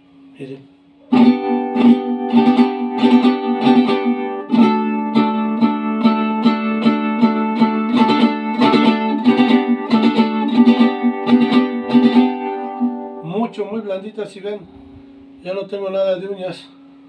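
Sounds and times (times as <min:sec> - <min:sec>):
guitar strummed chords: 0:01.1 - 0:14.4.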